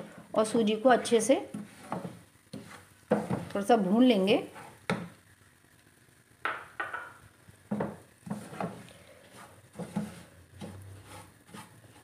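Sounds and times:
wooden spatula scraping a pan: 0.0 - 5.2, 7.6 - 12.0.

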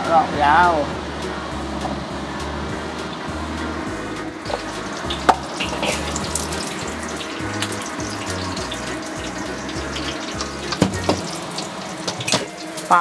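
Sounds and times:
garlic sizzling in hot oil: 3.0 - 13.0.

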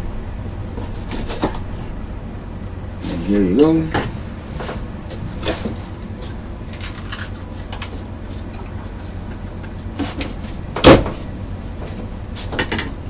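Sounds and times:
steady low hum: 0.0 - 13.0
cabinet door shutting: 10.8 - 11.2.

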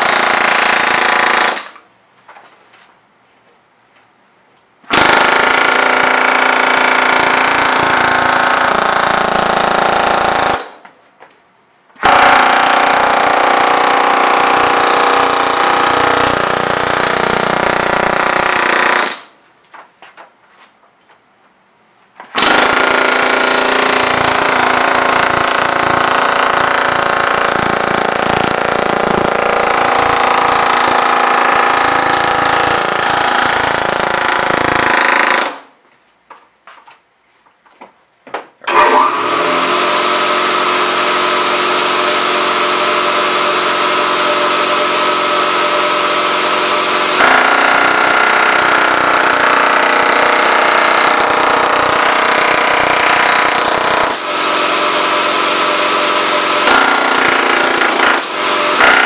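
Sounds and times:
pneumatic air hammer hammering: 0.0 - 1.8, 4.8 - 10.9, 12.0 - 19.4, 22.2 - 35.7, 38.7 - 59.0.

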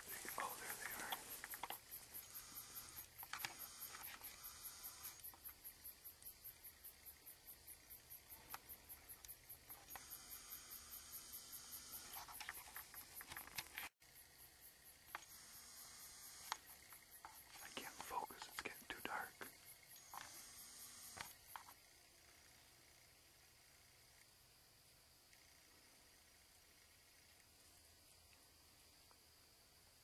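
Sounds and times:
crickets chirping: 0.0 - 30.0.

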